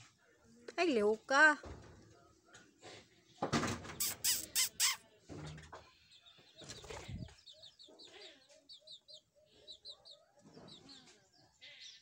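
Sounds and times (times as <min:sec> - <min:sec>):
parrots chattering: 0:04.0 - 0:05.0
parrots chirping: 0:04.0 - 0:05.0.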